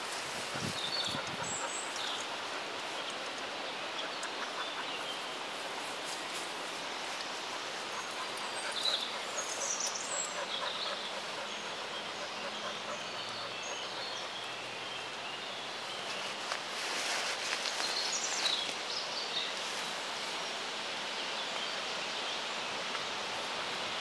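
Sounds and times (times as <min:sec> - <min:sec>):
steady rustling noise: 0:00.0 - 0:10.5, 0:16.0 - 0:20.6.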